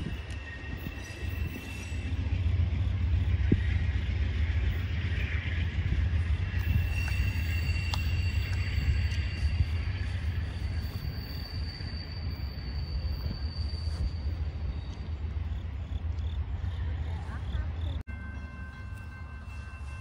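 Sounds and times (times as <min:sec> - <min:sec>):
faint steady tones: 0:00.0 - 0:20.0.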